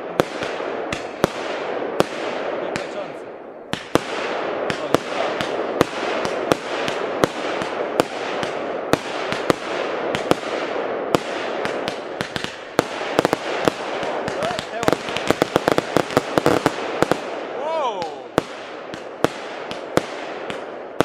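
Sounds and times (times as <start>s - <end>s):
firework bangs: 0.0s - 21.0s
hissing crackle: 11.2s - 20.7s.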